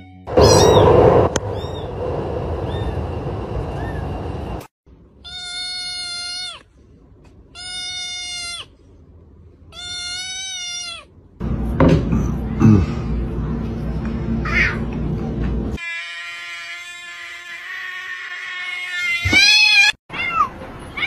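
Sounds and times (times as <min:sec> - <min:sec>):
background rumble: 0:00.3 - 0:04.7
kitten meowing: 0:00.4 - 0:00.8, 0:01.6 - 0:01.8, 0:05.2 - 0:06.6, 0:07.6 - 0:08.7, 0:09.7 - 0:11.1.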